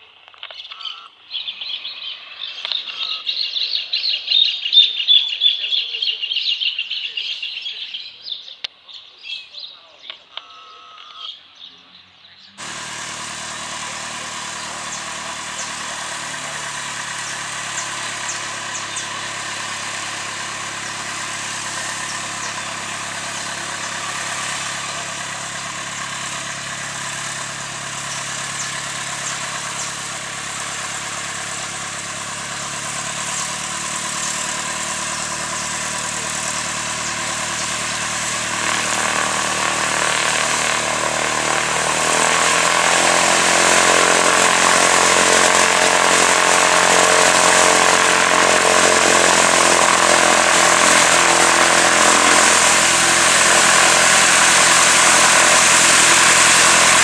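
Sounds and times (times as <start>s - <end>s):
bird chirps: 0.4s - 12.6s, 17.2s - 19.3s, 22.0s - 24.1s
small plane engine droning: 12.5s - 57.0s.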